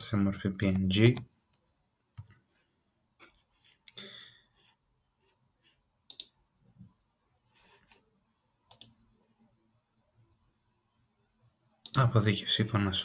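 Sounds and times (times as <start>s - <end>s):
computer mouse clicks: 6.1s - 6.4s, 8.7s - 9.0s.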